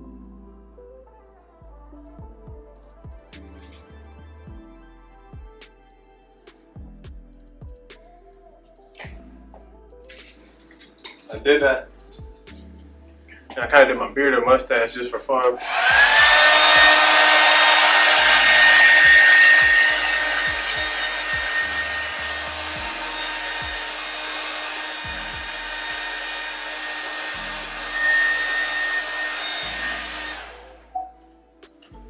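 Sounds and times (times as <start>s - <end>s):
hair dryer running: 15.6s - 31.0s.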